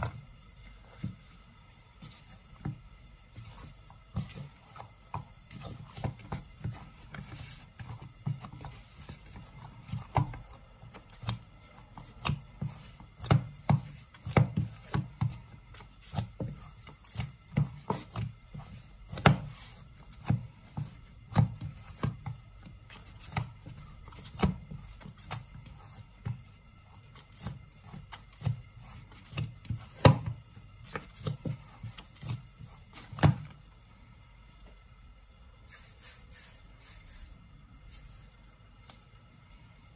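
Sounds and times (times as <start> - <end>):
dough kneaded by hand in bowl: 0.0 - 39.9.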